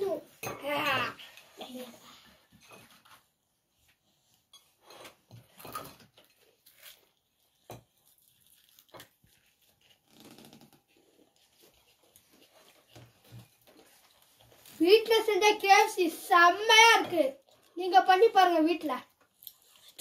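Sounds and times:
children biting and chewing: 3.9s - 14.8s, 19.0s - 20.0s.

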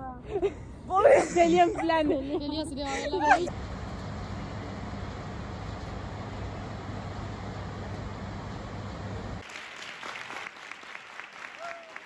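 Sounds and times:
distant road traffic rumble: 0.0s - 9.4s
audience applauding: 9.4s - 12.0s.

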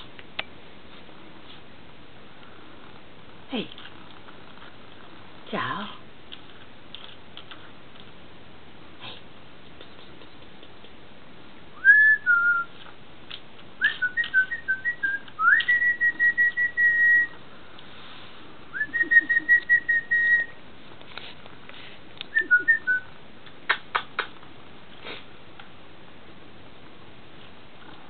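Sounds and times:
person whistling: 11.8s - 12.7s, 13.8s - 17.4s, 18.8s - 20.6s, 22.3s - 23.1s.

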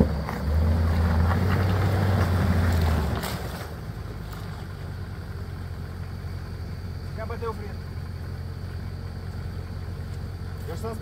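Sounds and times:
engine droning at raised revs: 0.0s - 11.0s.

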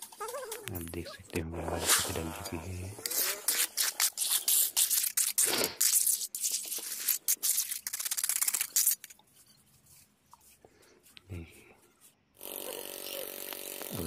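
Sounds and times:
trowel scraping wet concrete: 1.6s - 9.2s.

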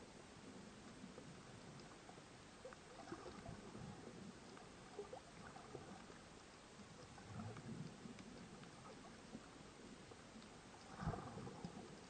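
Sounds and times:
low rush of water: 0.0s - 12.0s
underwater clicks and crackles: 0.0s - 12.0s.

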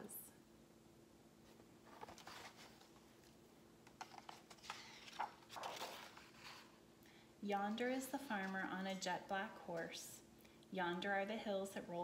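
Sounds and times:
book pages rustling: 1.4s - 6.8s.

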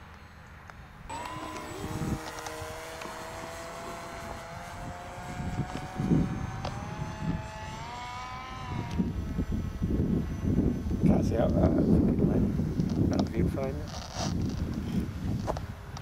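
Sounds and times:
electric motor propeller whine: 1.1s - 11.4s
wind gusts on microphone: 1.1s - 16.0s.

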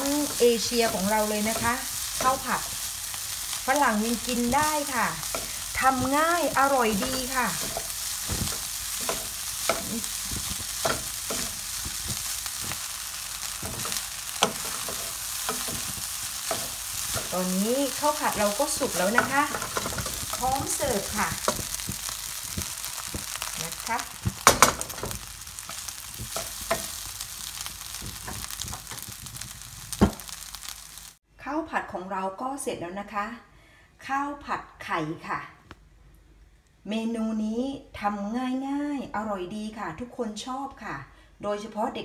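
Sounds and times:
spatulas scraping a pan: 0.0s - 30.9s
rice sizzling in a wok: 0.0s - 31.2s.

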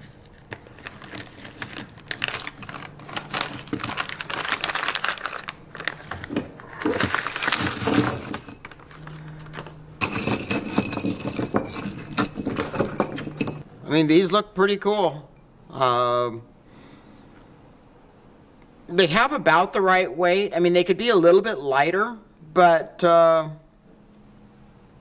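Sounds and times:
plastic bag rustling: 0.0s - 11.2s
metal parts clinking: 0.0s - 13.6s.

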